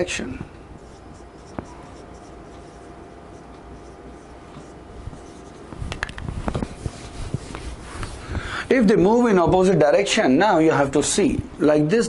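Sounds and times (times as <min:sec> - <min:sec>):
squeaky strokes on whiteboard: 0:00.8 - 0:05.8, 0:06.6 - 0:08.2
marker writing on whiteboard: 0:00.8 - 0:08.2.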